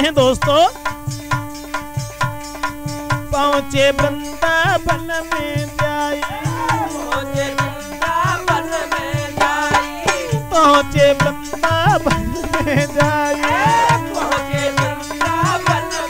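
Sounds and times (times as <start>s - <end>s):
hand drum rhythm: 0.0s - 16.0s
steady held drone note: 2.8s - 9.2s, 10.0s - 16.0s
sliding melody line: 3.3s - 16.0s.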